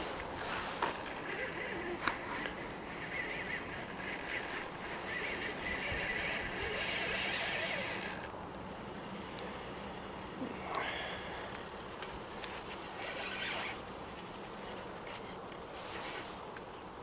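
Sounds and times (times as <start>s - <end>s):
fishing reel ticking: 0.0s - 8.4s, 11.4s - 11.8s, 15.8s - 16.2s, 16.8s - 17.0s.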